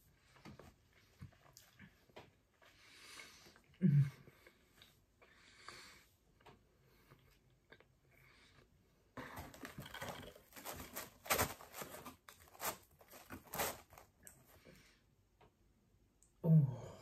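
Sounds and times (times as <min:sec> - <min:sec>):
pizza crust tearing: 0:09.8 - 0:14.1.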